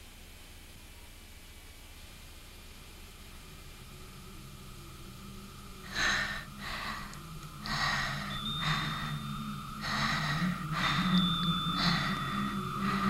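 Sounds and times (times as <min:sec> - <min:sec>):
low steady hum: 0:00.0 - 0:13.0
heavy raspy breathing: 0:05.8 - 0:13.0.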